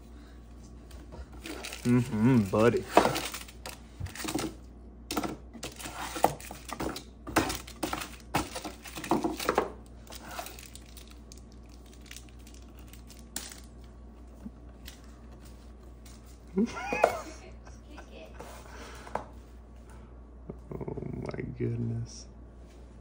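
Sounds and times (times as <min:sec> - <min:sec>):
packets and paper rustling: 0:01.4 - 0:04.5, 0:05.6 - 0:13.9.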